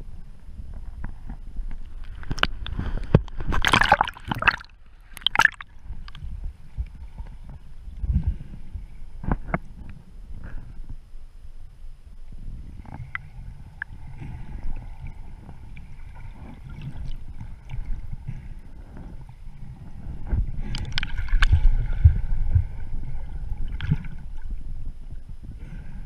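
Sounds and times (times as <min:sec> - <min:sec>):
water churning underwater: 0:00.0 - 0:10.9, 0:12.2 - 0:26.0.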